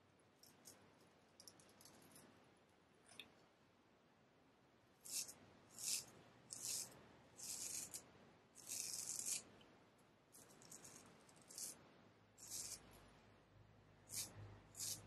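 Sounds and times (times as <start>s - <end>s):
razor scraping stubble: 5.0s - 9.5s, 10.4s - 11.8s, 12.4s - 13.0s, 14.1s - 15.0s.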